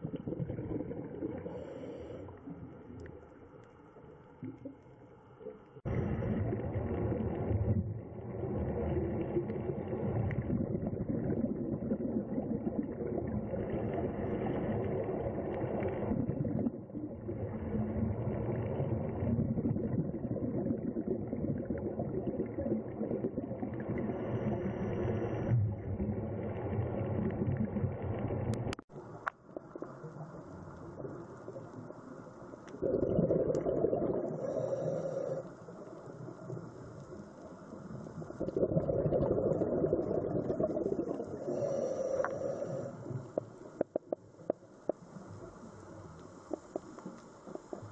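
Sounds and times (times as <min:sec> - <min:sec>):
muffled underwater rumbling: 0:05.8 - 0:35.2.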